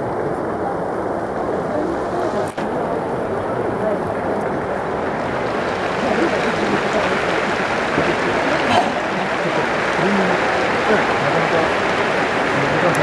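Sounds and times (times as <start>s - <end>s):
stadium crowd chanting and cheering: 4.7s - 13.0s.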